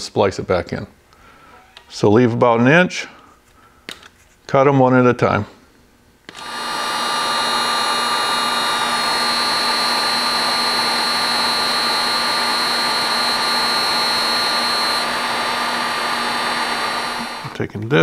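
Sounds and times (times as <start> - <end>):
heat gun blowing air: 6.3 - 17.6.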